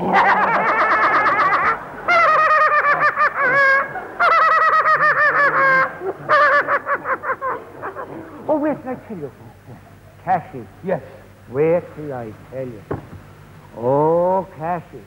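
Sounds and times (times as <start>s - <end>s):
man's falsetto cackling laugh: 0.0s - 8.4s.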